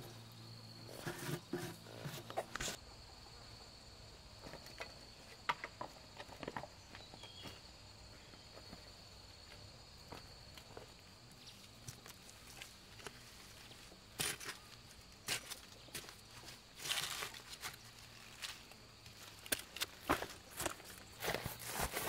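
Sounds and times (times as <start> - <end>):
footsteps on grass and dirt: 11.8 - 22.0
rustling in undergrowth: 15.3 - 22.0.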